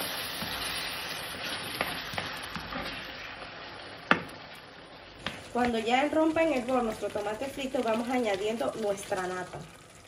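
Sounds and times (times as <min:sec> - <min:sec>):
spatula scraping pan: 0:00.0 - 0:03.8
sauce sizzling in frying pan: 0:00.0 - 0:10.0.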